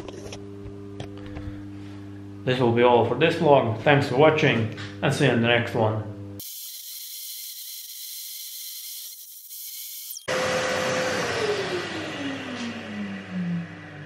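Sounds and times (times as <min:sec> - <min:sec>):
router spindle motor whine: 0:06.4 - 0:14.0.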